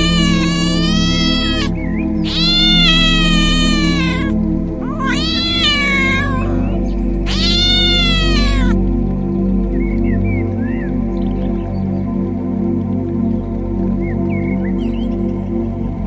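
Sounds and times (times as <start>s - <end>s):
cat meowing: 0.0s - 8.8s
background music: 0.0s - 16.0s.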